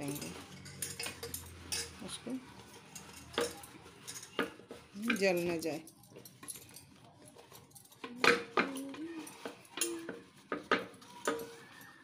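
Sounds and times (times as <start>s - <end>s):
knocks and clinks on metal pot: 8.0s - 11.6s.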